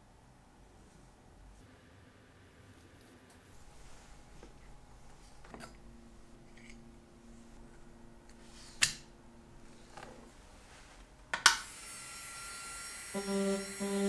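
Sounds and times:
micromotor handpiece whine: 11.7 - 14.0.

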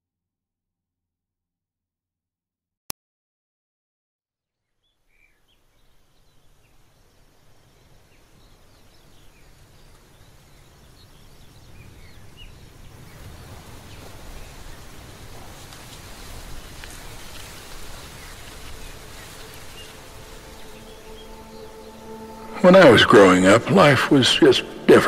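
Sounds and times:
outdoor noise wash: 5.5 - 25.0.

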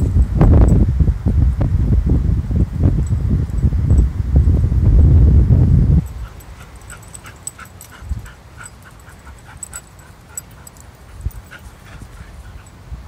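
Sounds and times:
dog whimpering: 6.1 - 12.7.

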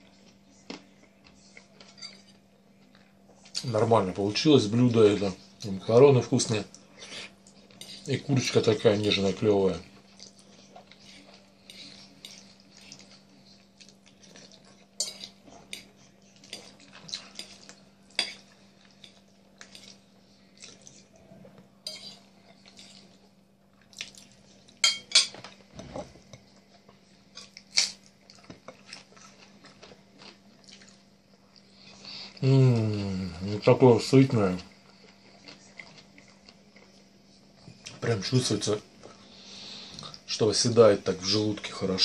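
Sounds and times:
fork clinking and scraping on plate: 1.8 - 2.4, 15.0 - 20.0, 21.8 - 23.0
chewing and mouth noises: 10.0 - 21.3, 22.2 - 24.8, 26.4 - 33.0, 34.9 - 37.1.

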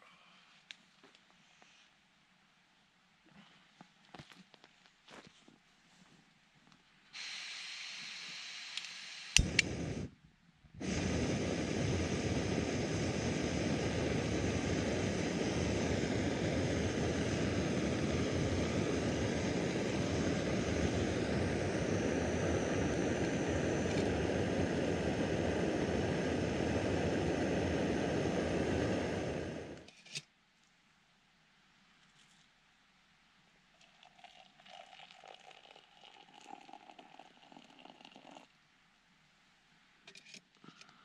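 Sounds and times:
gas burner rushing: 7.2 - 10.1, 10.8 - 29.9
gas hissing from valve: 7.2 - 10.1, 10.8 - 29.9
igniter click: 8.7 - 9.8.

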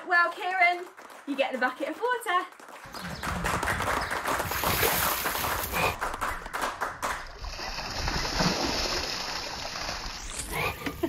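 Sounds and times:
water gushing and splashing: 4.4 - 6.0, 7.3 - 11.0.

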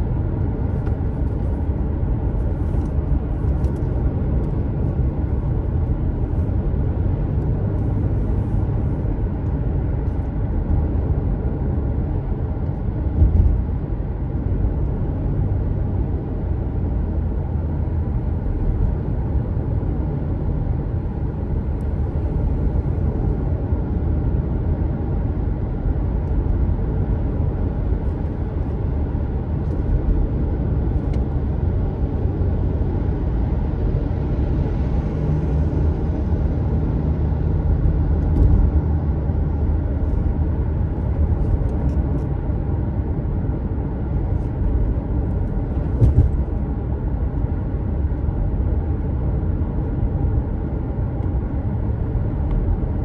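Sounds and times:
car road and engine rumble: 0.0 - 53.0.

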